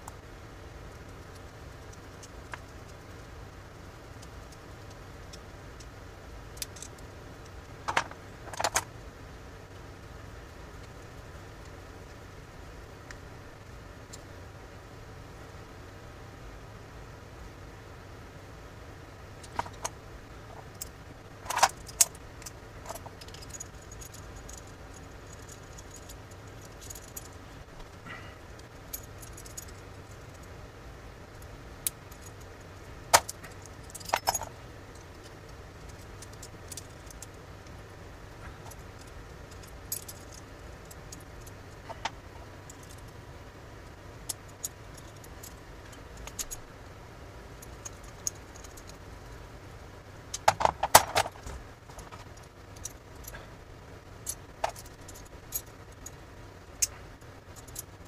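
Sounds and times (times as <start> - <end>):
small metal parts clicking: 6.5 - 8.9, 19.4 - 20.0, 20.6 - 30.6, 31.3 - 37.8, 38.6 - 43.2, 43.8 - 46.7, 47.6 - 49.1, 50.3 - 53.4, 54.2 - 58.0.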